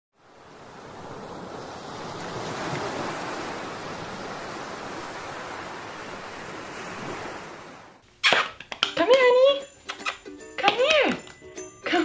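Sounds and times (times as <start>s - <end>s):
waves breaking: 0.2s - 8.0s.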